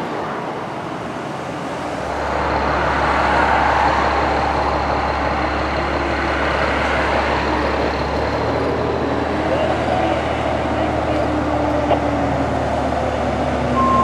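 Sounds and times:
diesel truck engine hum: 0:00.0 - 0:14.0.

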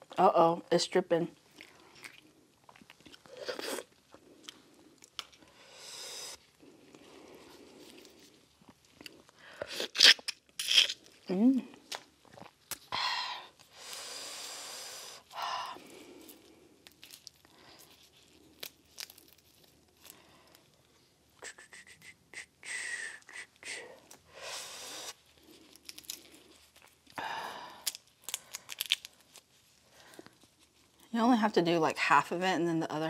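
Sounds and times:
crawfish shells crackling and tearing: 0:01.4 - 0:05.4, 0:06.4 - 0:12.9, 0:15.2 - 0:20.8, 0:25.1 - 0:31.1
plastic gloves crinkling: 0:06.3 - 0:12.9, 0:15.2 - 0:21.2, 0:25.0 - 0:31.8.

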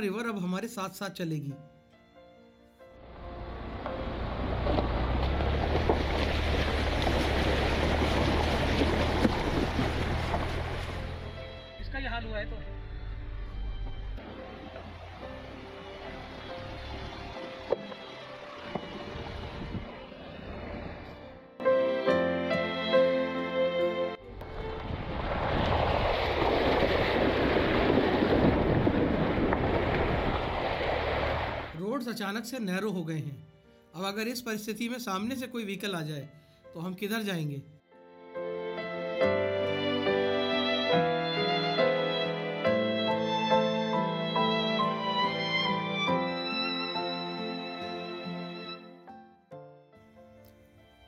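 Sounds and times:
diesel engine hum: 0:03.0 - 0:21.5
water rushing: 0:03.2 - 0:11.7, 0:14.2 - 0:21.4, 0:24.3 - 0:31.8
gravel clicking under tyre: 0:03.4 - 0:11.5, 0:14.6 - 0:21.2, 0:24.4 - 0:31.8
tyre splashing through water: 0:04.0 - 0:11.4, 0:24.4 - 0:31.8
wind on microphone: 0:18.8 - 0:21.2, 0:24.4 - 0:31.8.

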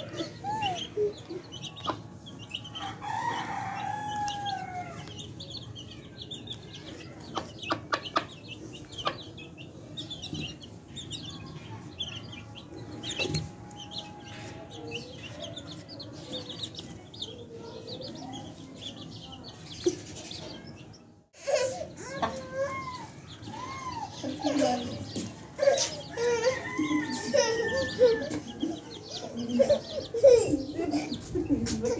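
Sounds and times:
chicks peeping: 0:00.0 - 0:21.2, 0:22.0 - 0:31.9
hen clucking: 0:06.9 - 0:11.2.

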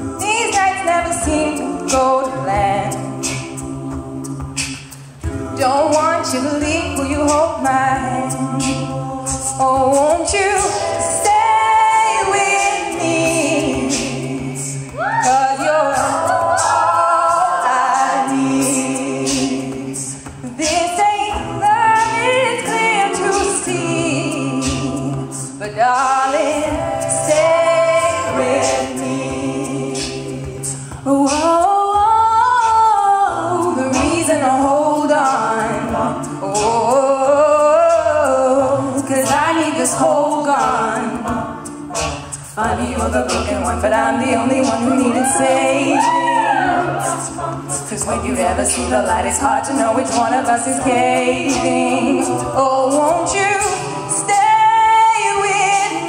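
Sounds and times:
a cappella group singing: 0:00.0 - 0:56.0
mouth percussion clicking: 0:03.2 - 0:16.2.

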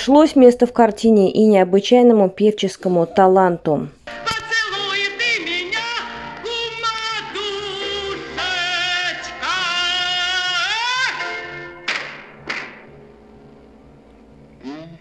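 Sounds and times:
grand piano accompaniment: 0:04.1 - 0:14.6.

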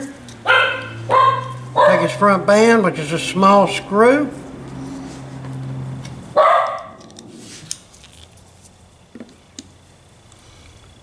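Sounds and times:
dog barking: 0:00.4 - 0:02.2, 0:06.4 - 0:07.0.

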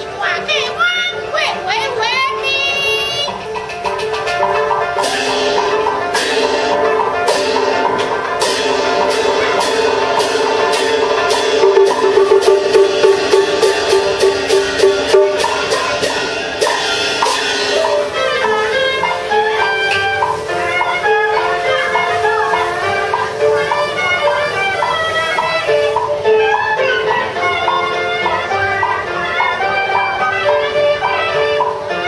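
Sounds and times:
drum strikes: 0:03.3 - 0:31.9
sustained melody line: 0:03.3 - 0:32.0
wood block strikes: 0:10.8 - 0:18.1.

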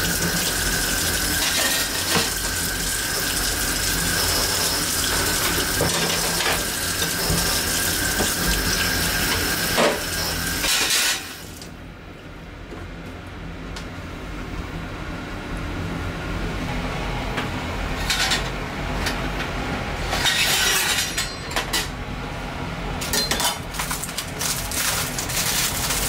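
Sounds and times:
tap water running into sink: 0:00.0 - 0:10.6.

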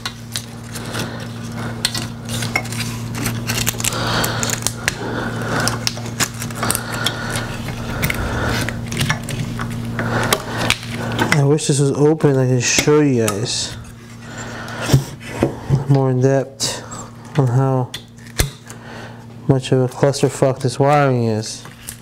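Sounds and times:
clicks and rustles of plastic parts: 0:00.0 - 0:05.0
steady low hum: 0:00.0 - 0:22.0.

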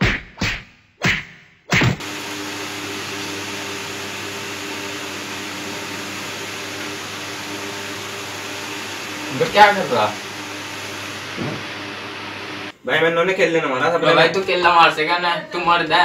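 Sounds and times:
machine whirring with low hum: 0:02.0 - 0:12.7
booming hits: 0:11.3 - 0:11.9.

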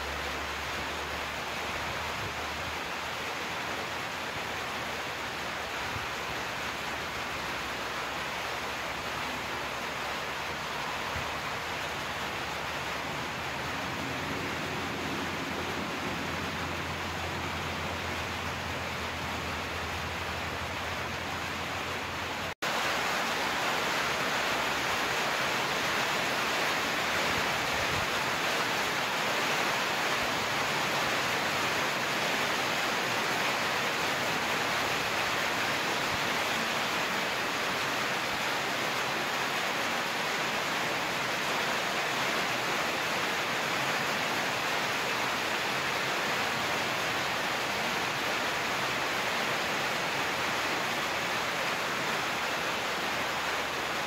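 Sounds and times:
steady rain hiss: 0:00.0 - 0:54.0.

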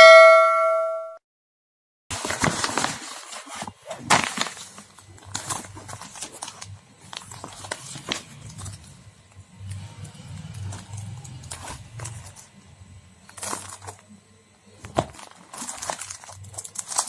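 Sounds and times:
paper envelope crinkling and tearing: 0:02.1 - 0:09.0, 0:14.9 - 0:17.0
cardboard box rustling and clicking: 0:02.2 - 0:08.7.

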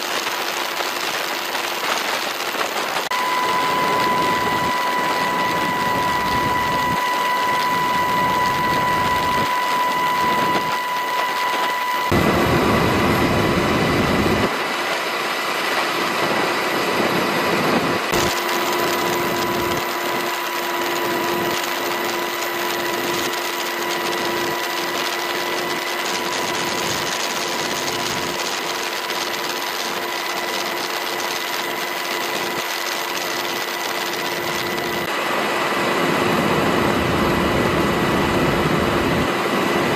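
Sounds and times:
turbine and gearbox whine: 0:00.0 - 0:14.6, 0:16.0 - 0:35.2
helicopter rotor beat: 0:00.0 - 0:39.9.

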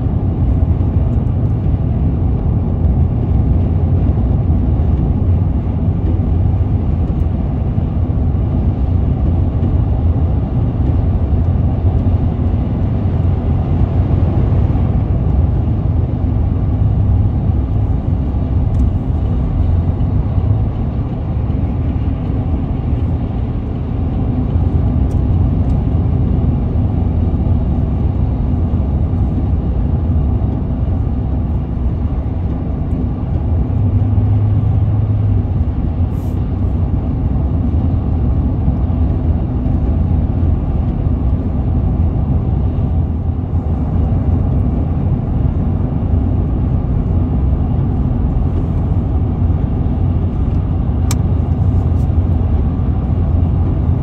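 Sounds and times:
car road and engine rumble: 0:00.0 - 0:54.0.

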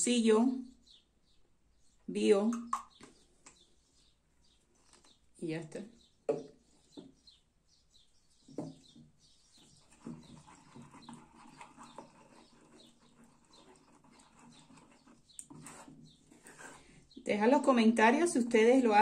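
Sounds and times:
small birds chirping: 0:00.0 - 0:19.0
bottle set down on wooden table: 0:06.3 - 0:06.5
wooden spoon scraping in a bowl: 0:09.5 - 0:17.2.

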